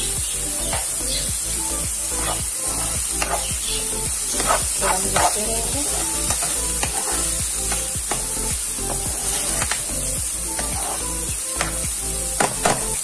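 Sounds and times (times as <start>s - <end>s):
vegetables sizzling in a frying pan: 0.0s - 13.0s
metal spatula scraping a pan: 2.1s - 9.8s, 10.6s - 11.8s.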